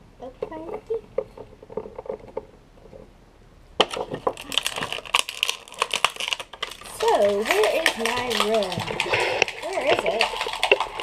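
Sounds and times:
plastic toy figures clicking: 3.8s - 11.0s.

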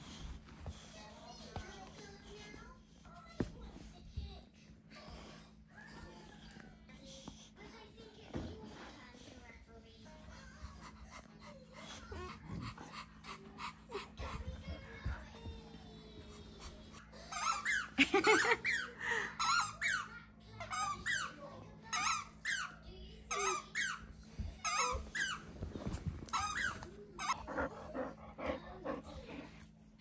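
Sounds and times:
child laughing: 17.8s - 19.6s.

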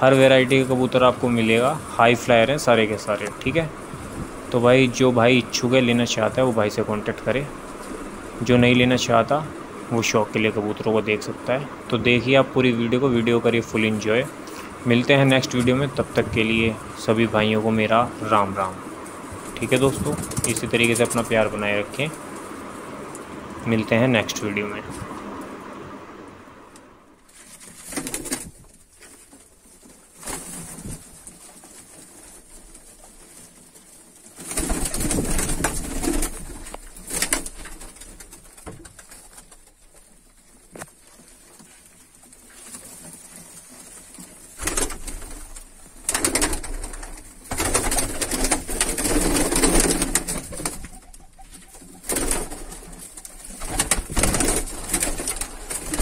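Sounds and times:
pigeons scuffling and wing flapping: 18.4s - 23.0s, 27.3s - 56.0s
pigeons cooing: 44.4s - 56.0s.

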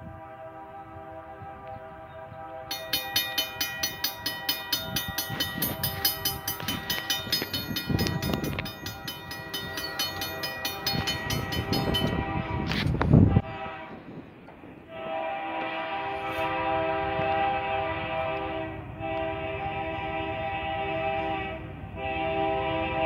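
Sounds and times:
train air horn: 0.0s - 3.4s, 11.6s - 23.0s
train rumble: 0.0s - 23.0s
crossing bell dinging: 2.7s - 12.5s.

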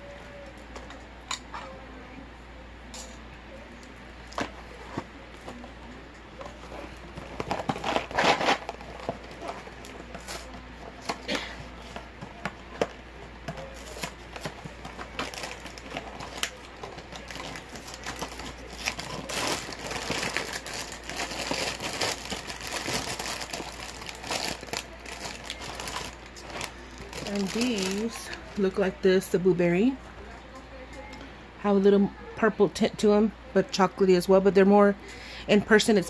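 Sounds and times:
plastic bag crinkling: 6.5s - 12.0s, 13.6s - 28.8s.

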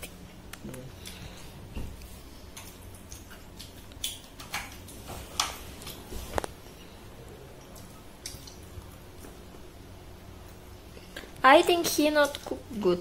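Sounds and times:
low steady hum: 0.0s - 13.0s
chewing and food handling clicks: 2.0s - 6.6s.

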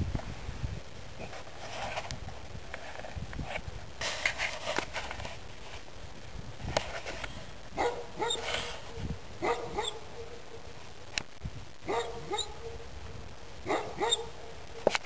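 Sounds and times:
dog barking: 7.8s - 8.5s, 9.4s - 10.4s, 11.9s - 12.8s, 13.6s - 14.5s.

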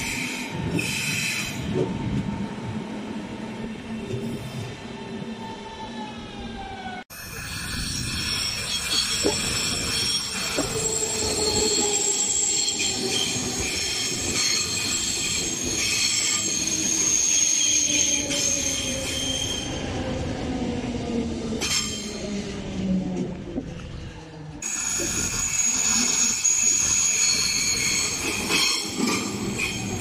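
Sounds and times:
train wheels squealing on rails: 0.0s - 2.5s, 4.0s - 20.3s, 21.6s - 22.6s, 24.6s - 30.0s
rumble of train cars: 0.0s - 30.0s.

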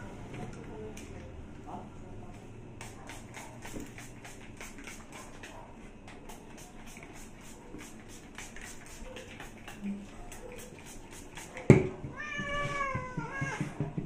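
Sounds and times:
cat meowing: 12.1s - 13.7s.

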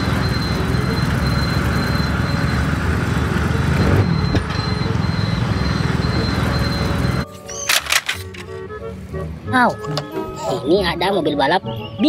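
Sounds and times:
crane engine throbbing: 0.0s - 7.2s.

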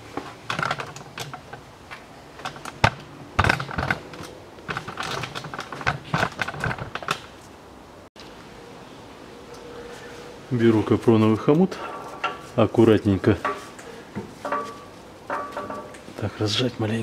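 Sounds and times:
sharp metal knocks: 13.4s - 16.1s.

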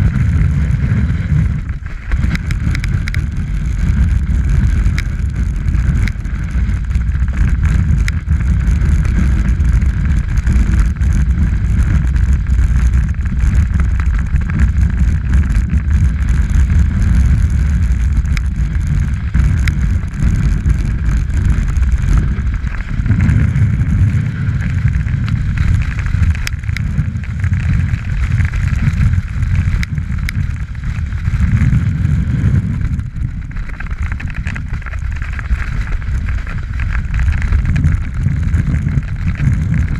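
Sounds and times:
snowboard scraping over snow: 0.0s - 39.9s
wind rushing over microphone: 0.0s - 39.9s.

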